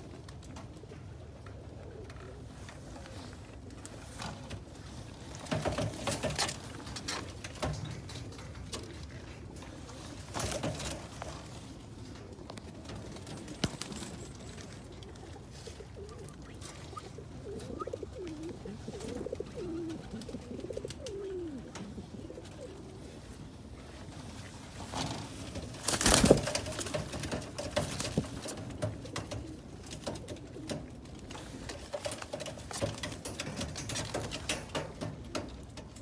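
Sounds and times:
birds scuffling and clicking: 0:00.0 - 0:36.0
pigeons cooing: 0:01.2 - 0:03.7, 0:05.5 - 0:24.5
wings flapping: 0:05.3 - 0:23.2, 0:24.4 - 0:36.0.

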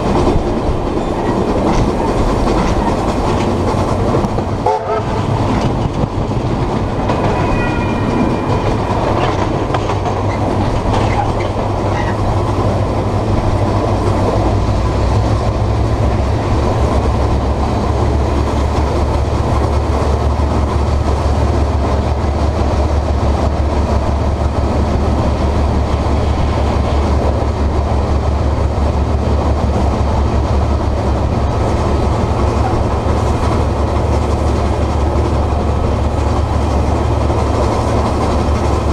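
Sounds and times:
wheels clattering over rails: 0:00.0 - 0:26.4
train rumbling: 0:00.0 - 0:38.9.

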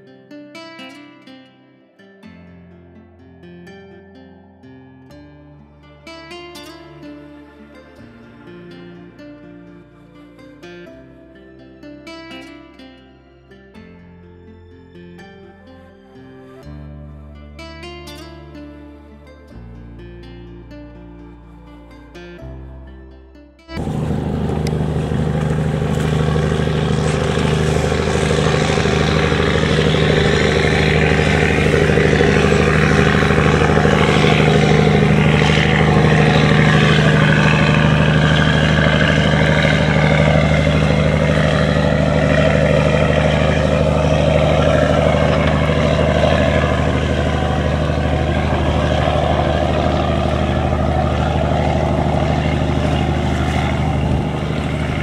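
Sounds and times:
boat diesel engine drone: 0:02.7 - 0:55.0
water rushing at hull: 0:23.8 - 0:55.0.

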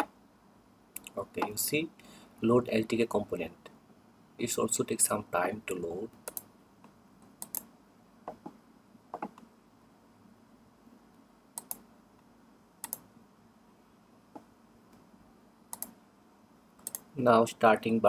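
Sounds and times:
faint steady hiss: 0:00.0 - 0:18.0
computer keyboard and mouse clicks: 0:07.3 - 0:07.7, 0:08.3 - 0:09.5, 0:11.6 - 0:11.8, 0:12.8 - 0:13.0, 0:15.7 - 0:16.0, 0:16.8 - 0:17.1.

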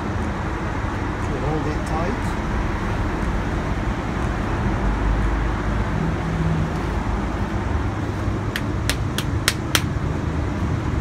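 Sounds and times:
traffic noise: 0:00.0 - 0:11.0
sharp metal taps: 0:08.6 - 0:09.9.

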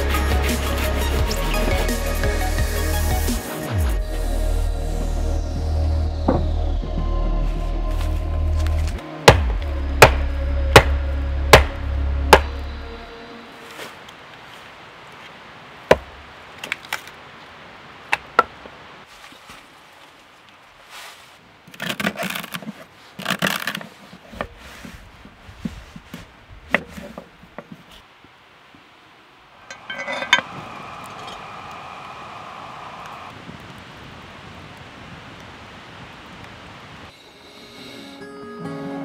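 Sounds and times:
music: 0:00.0 - 0:14.0, 0:37.2 - 0:39.0
hatchet splitting wood: 0:09.3 - 0:12.6, 0:15.9 - 0:16.8.

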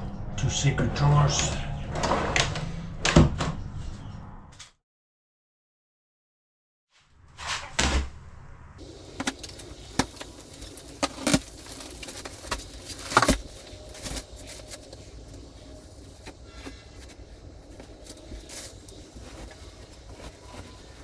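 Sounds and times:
plastic wrapping rustling: 0:08.8 - 0:21.0.

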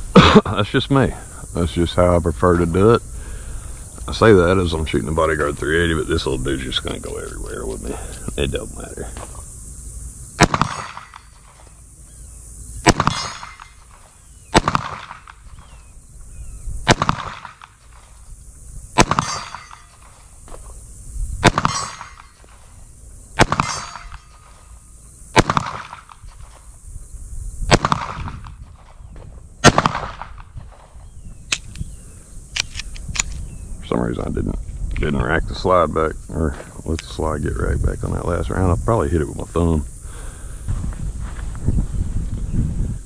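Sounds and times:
handgun shots: 0:10.4 - 0:11.4, 0:12.8 - 0:13.8, 0:14.5 - 0:15.4, 0:16.9 - 0:17.8, 0:19.0 - 0:20.2, 0:21.4 - 0:22.4, 0:23.4 - 0:24.5, 0:25.4 - 0:26.2, 0:27.7 - 0:28.5, 0:29.6 - 0:30.4.

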